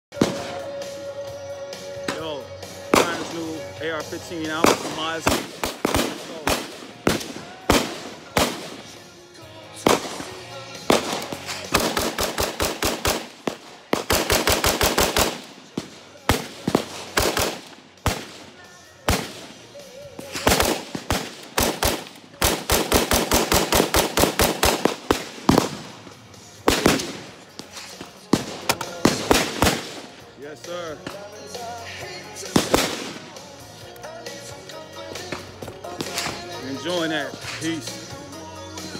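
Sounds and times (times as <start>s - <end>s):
rifle firing rapid shots: 2.9s - 3.6s, 4.5s - 9.1s, 9.8s - 30.3s, 32.5s - 33.5s.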